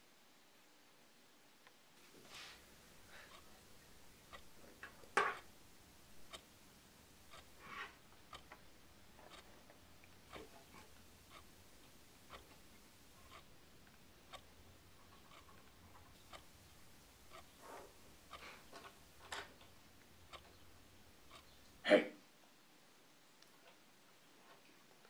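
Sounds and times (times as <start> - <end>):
clock ticking: 2.9 - 21.8.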